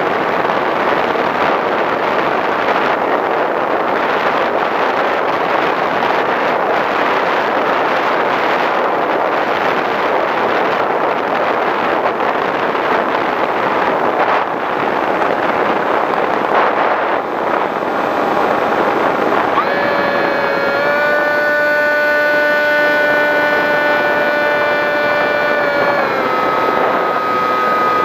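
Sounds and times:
wind rushing over microphone: 0.0 - 28.0
electric motor and propeller whine: 16.4 - 28.0.

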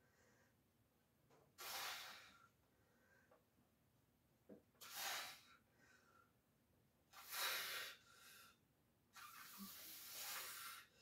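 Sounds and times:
forceful hissing exhales: 1.6 - 2.4.

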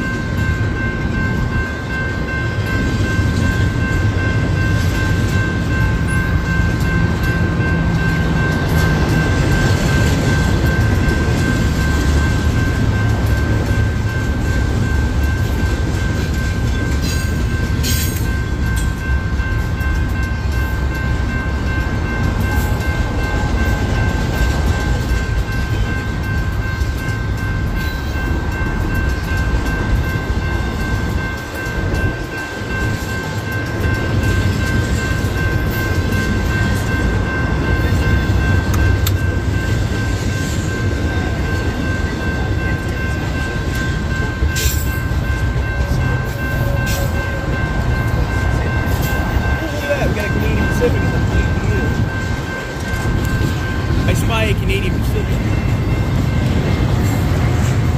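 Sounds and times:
high ringing tone: 0.0 - 57.9
train clanks: 0.0 - 57.9
train wheels rumbling on rail: 0.0 - 57.9.

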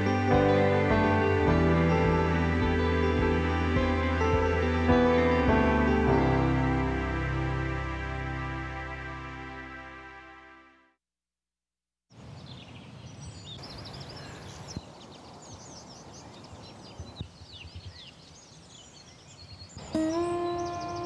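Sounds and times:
birds chirping and singing: 12.4 - 21.0
loud horn-like tone: 19.8 - 21.0.

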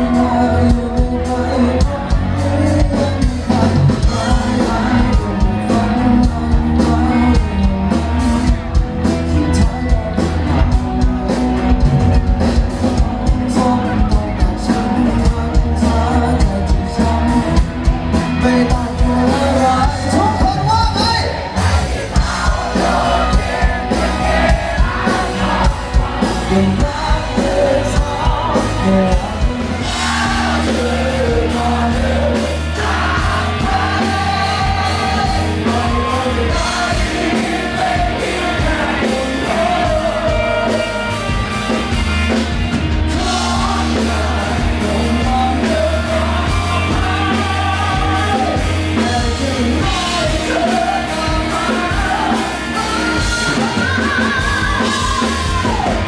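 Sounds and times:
man singing: 0.0 - 42.4, 43.0 - 56.0
bass guitar: 0.0 - 56.0
drum kit: 0.0 - 56.0
electric guitars: 0.0 - 56.0.

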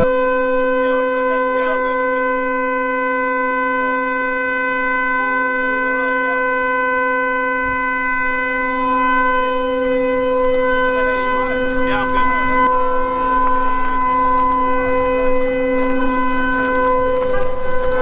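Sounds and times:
steady horn-like tone: 0.0 - 18.0
faint voices: 8.7 - 18.0.

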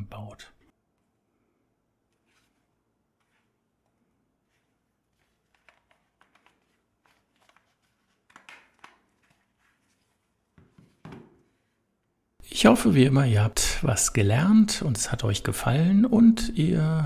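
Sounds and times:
soft rubber and plastic scrapes: 2.1 - 11.8.

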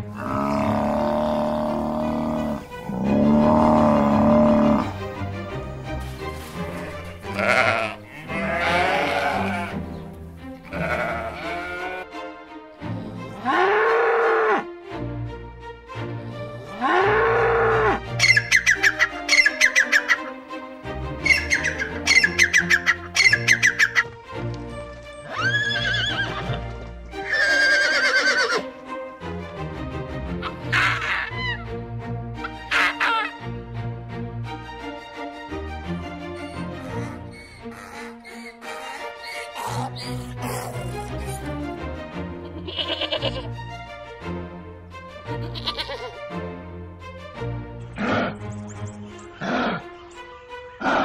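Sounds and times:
background music: 0.0 - 51.0
sheep bleating: 6.6 - 9.9, 10.6 - 12.1, 42.4 - 43.5, 45.4 - 46.2
horse whinnying: 6.8 - 9.8, 10.7 - 12.0, 25.2 - 28.7, 42.5 - 43.5, 45.4 - 46.2
bird cackling call: 18.2 - 20.3, 21.2 - 24.1, 32.7 - 33.4, 36.4 - 40.1.

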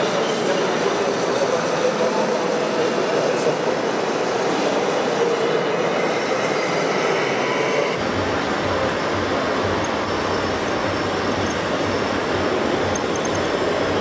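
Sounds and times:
electric motor and gearbox whine: 5.8 - 14.0.

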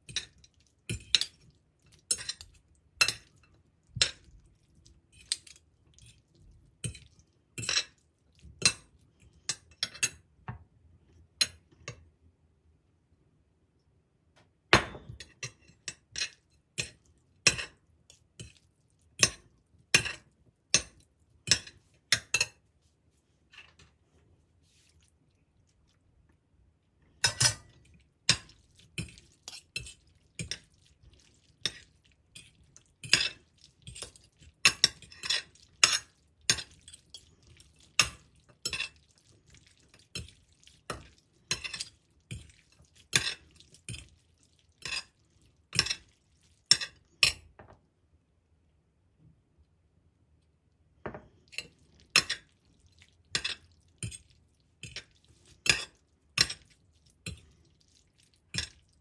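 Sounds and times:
cutlery clinking on ceramic plate: 27.2 - 39.0, 39.6 - 44.2, 53.4 - 57.4.

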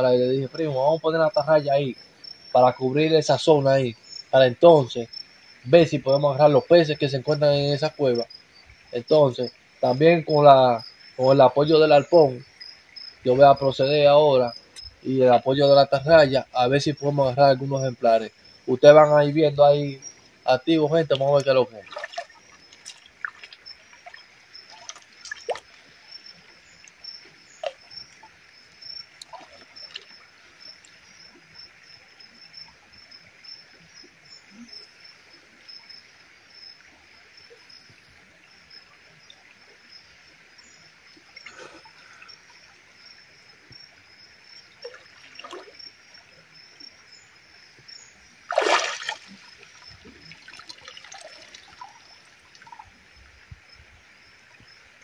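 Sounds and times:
creek water trickling: 0.0 - 55.0
swimmer splashing: 21.4 - 26.0, 44.8 - 45.8, 48.4 - 52.8
loud splash of diving: 48.5 - 49.6.

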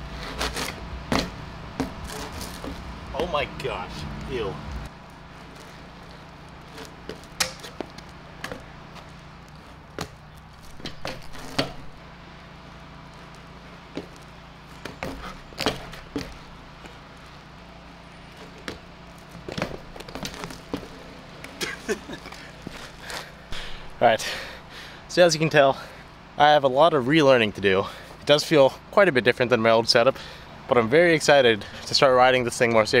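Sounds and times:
steady low hum: 0.0 - 33.0
bike parts knocking on pavement: 9.9 - 12.0, 13.9 - 17.0, 18.4 - 23.9.

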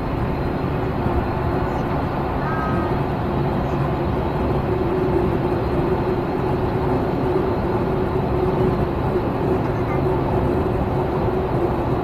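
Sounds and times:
passenger train running: 0.0 - 12.0.

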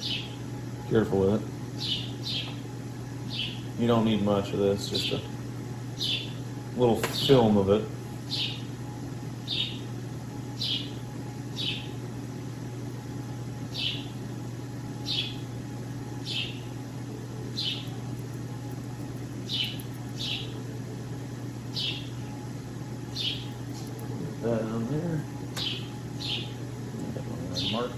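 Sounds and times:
steady low hum: 0.0 - 27.9
bird chirping: 1.8 - 2.6, 3.3 - 3.7, 6.0 - 6.4, 8.3 - 8.7, 9.4 - 9.9, 10.6 - 11.0, 11.6 - 11.9, 13.7 - 14.1, 15.0 - 15.4, 16.2 - 16.7, 17.5 - 18.0, 19.4 - 20.6, 21.7 - 22.3, 23.1 - 24.0, 25.6 - 26.6.

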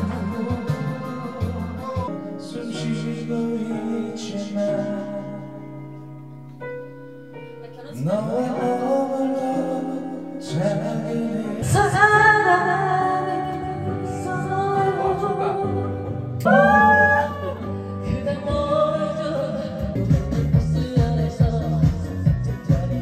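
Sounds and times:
man singing karaoke: 0.0 - 6.0, 7.8 - 12.3, 14.4 - 23.0
amplified backing track: 0.0 - 23.0
women singing karaoke: 11.6 - 22.0.

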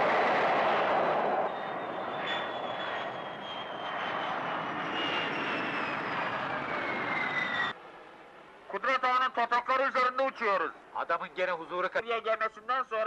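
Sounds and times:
jet engine roaring: 0.0 - 7.8
jet engine whine: 0.0 - 8.1.

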